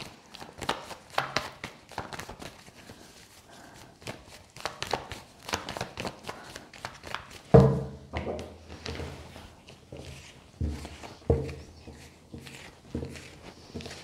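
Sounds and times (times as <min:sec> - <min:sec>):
cards being shuffled: 0:00.0 - 0:07.5.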